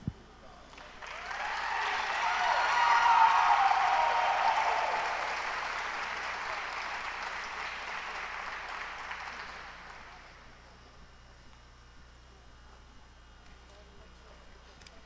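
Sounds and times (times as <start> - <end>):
audience applause: 0.7 - 10.4.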